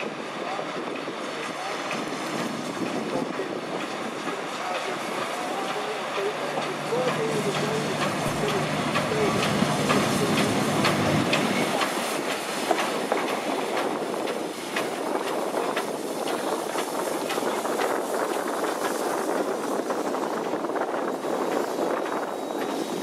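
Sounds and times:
wheels clicking over rail joints: 0.0s - 19.8s
steam hissing: 0.0s - 23.0s
steam locomotives rolling past: 0.0s - 23.0s.

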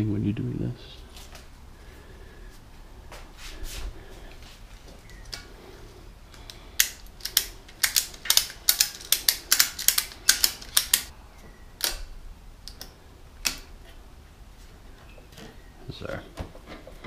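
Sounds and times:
ratchet buckle clicking: 6.8s - 11.1s.

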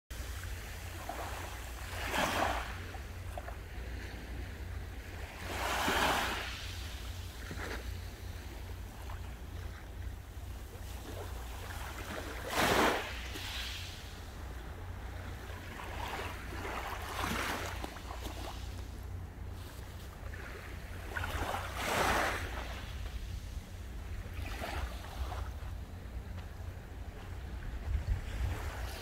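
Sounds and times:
steady low rumble: 0.1s - 29.0s
sea waves breaking on shore: 0.2s - 29.0s.

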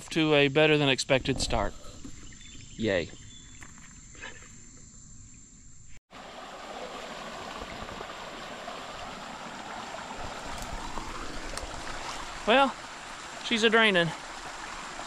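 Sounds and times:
water rushing through dam: 6.2s - 15.0s.

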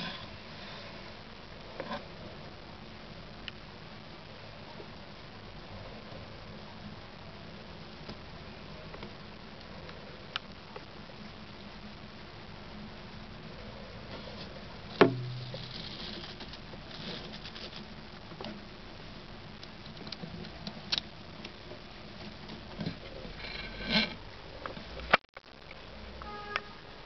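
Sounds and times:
sharp knock: 15.0s - 15.6s.

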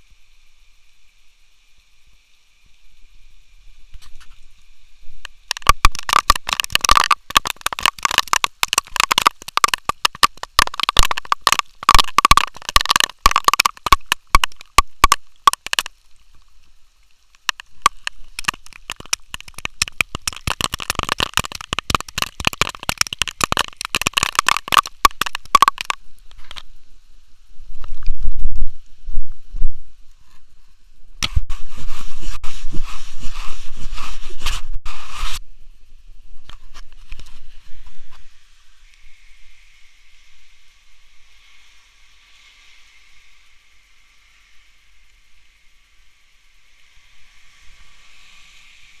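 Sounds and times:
raindrops ticking on camera: 5.2s - 26.6s.

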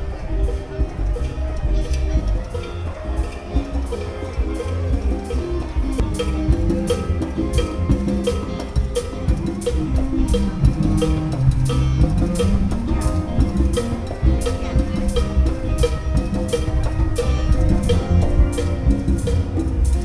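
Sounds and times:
music with drum beat and bass: 0.0s - 20.0s.

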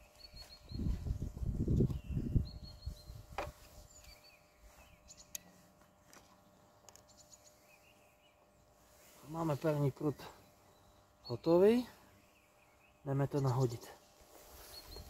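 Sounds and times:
small birds calling: 0.0s - 5.7s, 6.4s - 15.0s.

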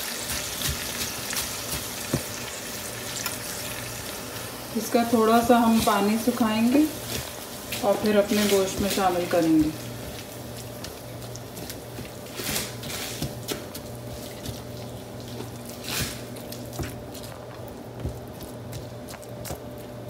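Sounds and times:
spinach sizzling in a frying pan: 0.0s - 10.8s.

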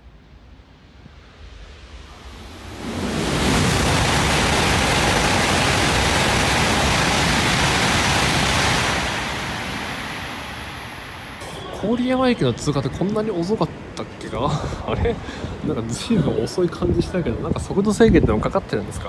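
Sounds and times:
train rushing past: 0.0s - 14.4s.

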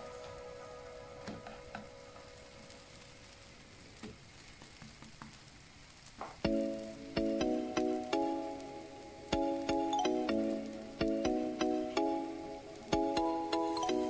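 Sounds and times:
background music chords: 0.0s - 3.6s, 6.4s - 14.0s
crepe sizzling in a pan: 0.0s - 14.0s.

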